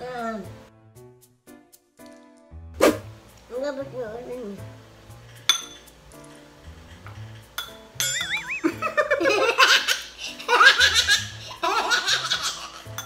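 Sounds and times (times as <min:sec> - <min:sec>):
background music: 0:00.0 - 0:13.0
wavering whistle-like tone: 0:08.2 - 0:08.8
two people laughing: 0:08.3 - 0:12.7.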